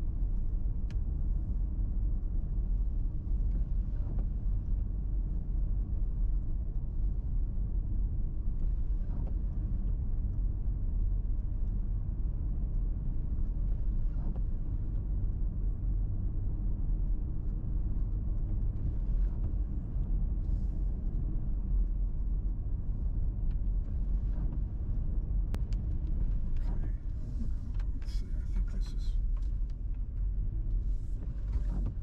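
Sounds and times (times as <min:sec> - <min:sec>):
engine and tyres rumbling: 0:08.6 - 0:32.0.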